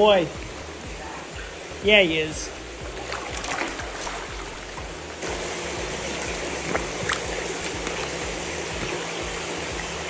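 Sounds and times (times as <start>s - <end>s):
running water: 0.0s - 10.0s.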